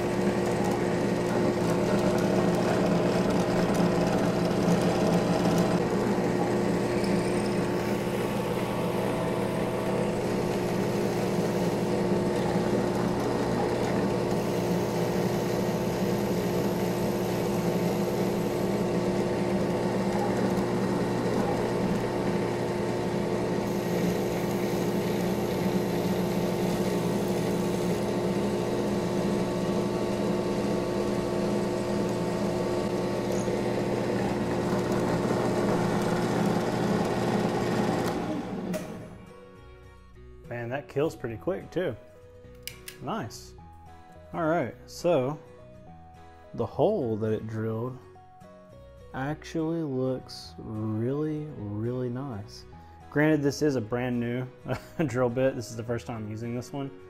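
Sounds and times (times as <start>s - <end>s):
drill press motor hum and whine: 0.0s - 39.3s.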